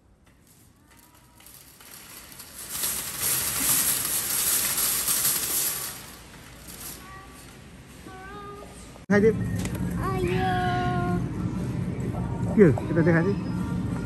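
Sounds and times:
wire shopping cart rattling: 0.0 - 7.7.

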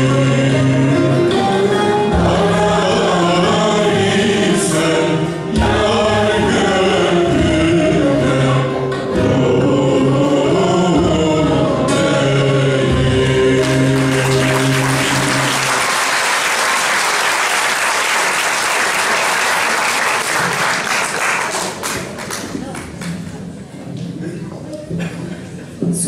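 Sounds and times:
man singing with mixed choir: 0.0 - 15.9
audience applause: 13.6 - 23.4.

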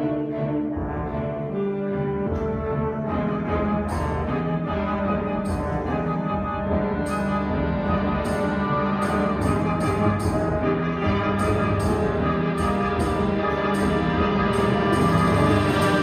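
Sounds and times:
concert band playing chords: 5.3 - 16.0
crisp high percussion strokes: 11.4 - 16.0.

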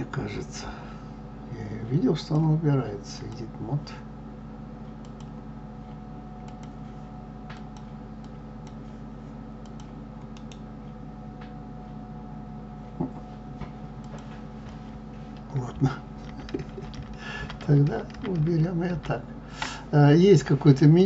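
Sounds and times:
steady low hum: 0.0 - 21.0
computer mouse clicks: 5.0 - 5.4, 6.4 - 6.8, 9.6 - 10.7.

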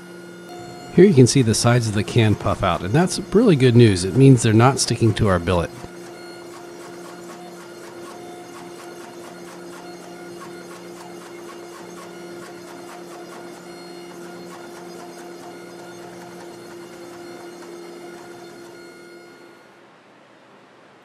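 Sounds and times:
hydraulic press humming: 0.0 - 19.7.

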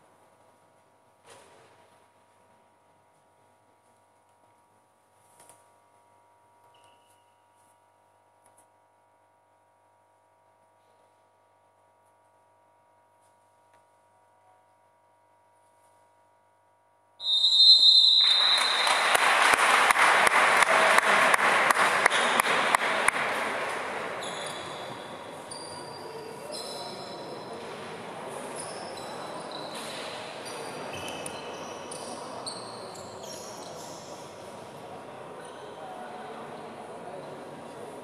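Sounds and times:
shoes squeaking on court: 6.7 - 7.4, 24.0 - 27.7, 28.4 - 34.3
high whistle blast: 17.2 - 19.0
crowd applauding: 18.0 - 24.2.

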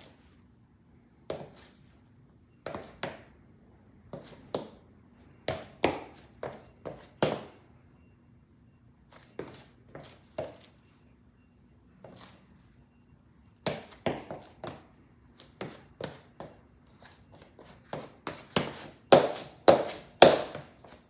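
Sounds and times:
sneaker footsteps on wooden floor: 17.4 - 21.0.

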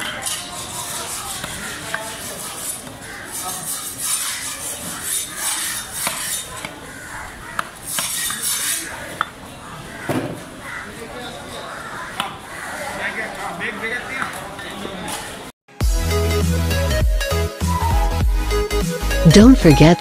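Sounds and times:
knife slicing fish on wooden block: 5.1 - 6.4.

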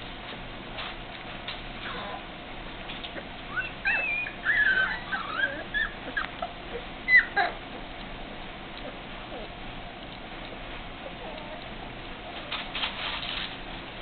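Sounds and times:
puppies whimpering: 3.0 - 11.8.

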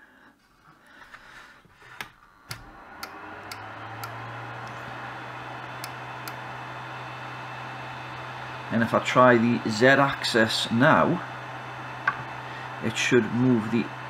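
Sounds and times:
cooling fans humming: 0.9 - 14.0
power switch click: 2.4 - 4.8, 5.8 - 6.4.

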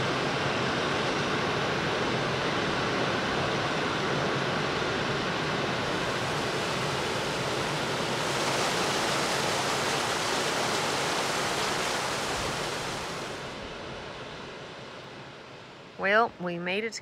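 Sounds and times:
water rushing over boulders: 5.8 - 13.6.

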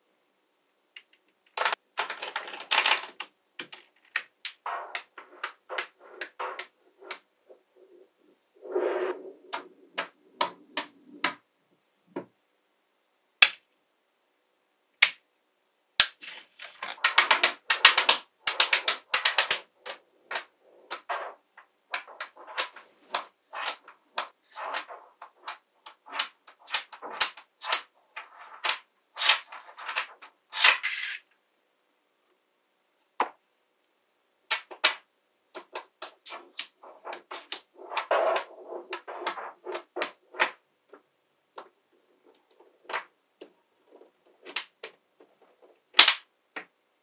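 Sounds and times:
magnetic balls clicking together: 0.9 - 8.1, 9.5 - 11.4, 16.0 - 31.3, 34.5 - 41.0, 41.6 - 46.7.

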